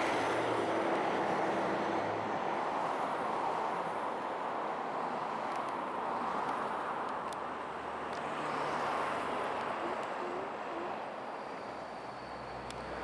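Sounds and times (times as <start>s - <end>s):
road traffic noise: 0.0s - 13.0s
sea lion whimpering calls: 9.8s - 11.0s.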